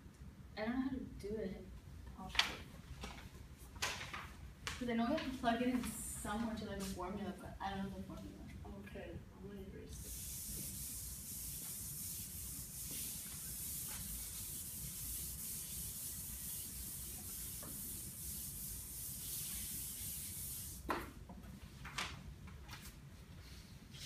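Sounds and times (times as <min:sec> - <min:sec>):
eraser rubbing on chalkboard: 0:10.0 - 0:20.8.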